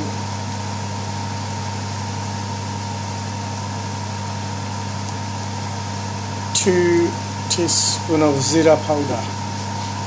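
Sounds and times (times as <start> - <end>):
low mechanical hum with hiss: 0.0 - 10.0.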